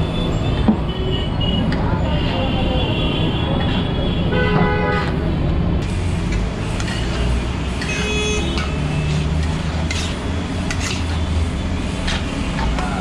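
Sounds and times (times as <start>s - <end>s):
street traffic rumbling: 0.0s - 13.0s
vehicle horns tooting: 0.2s - 5.2s, 7.8s - 9.3s.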